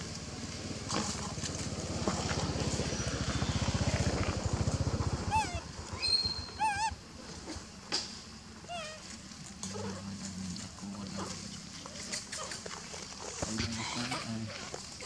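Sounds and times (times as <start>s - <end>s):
pulsing motor-like rumble: 0.1s - 7.0s
warbling high-pitched animal calls: 5.2s - 7.0s.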